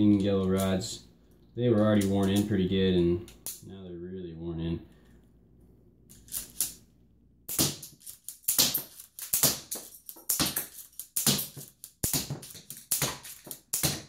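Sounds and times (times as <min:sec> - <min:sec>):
toy rubber-band gun firing: 0:07.5 - 0:14.0.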